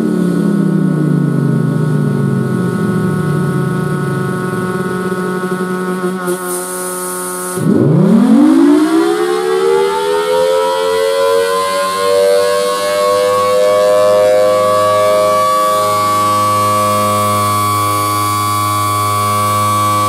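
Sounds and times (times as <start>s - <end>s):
steady hum: 0.0s - 9.5s
siren winding up: 3.0s - 20.0s.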